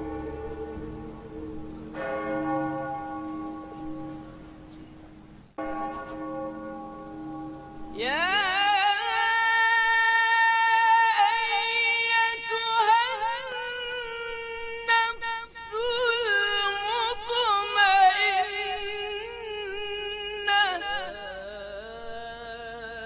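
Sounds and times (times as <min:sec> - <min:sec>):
woman singing wordless melody: 0:07.9 - 0:23.0.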